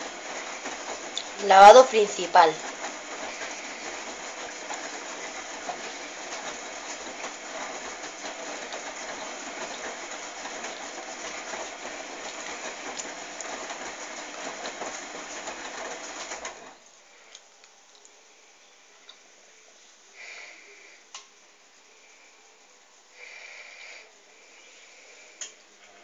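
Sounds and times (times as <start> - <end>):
washing machine drum sloshing: 0.0 - 16.8.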